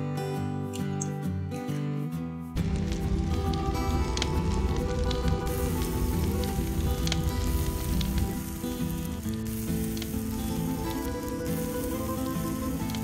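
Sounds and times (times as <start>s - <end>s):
egg sizzling in hot oil: 2.7s - 13.0s.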